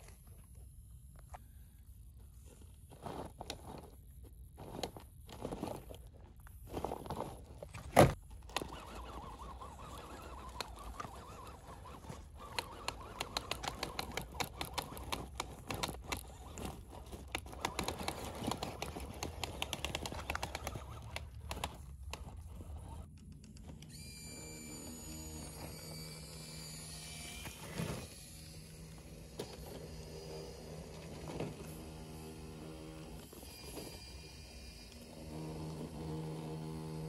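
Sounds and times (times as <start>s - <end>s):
tyres crunching on stones: 2.7s - 23.1s
small electric motor whirring: 7.1s - 37.0s.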